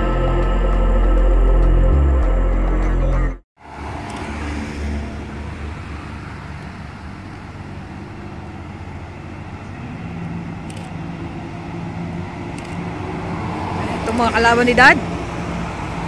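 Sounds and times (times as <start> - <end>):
cars driving slowly past: 3.6 - 16.0.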